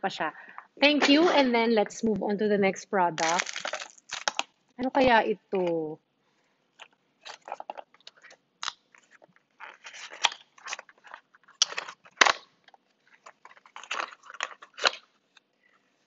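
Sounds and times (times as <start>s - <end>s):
packaging crinkling by hand: 3.2s - 4.6s, 6.8s - 15.4s.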